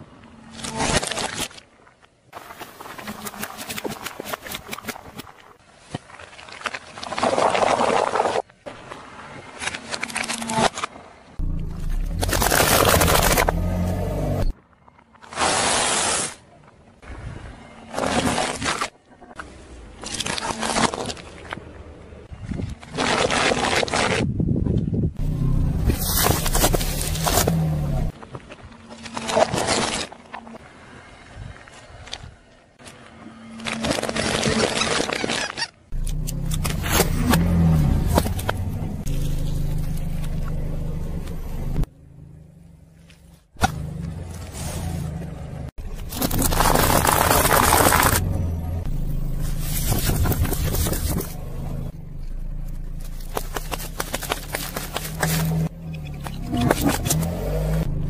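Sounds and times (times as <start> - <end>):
tyre crunching objects: 9.6 - 14.5, 25.2 - 30.6, 33.5 - 40.8, 45.8 - 58.0
car engine hum: 11.4 - 14.6, 25.2 - 28.1, 36.0 - 58.0.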